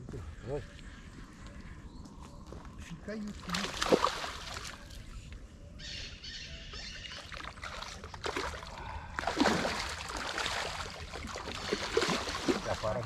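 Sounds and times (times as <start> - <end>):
bird calling: 0.1 - 8.0
water sloshing: 3.3 - 5.2, 7.1 - 13.0.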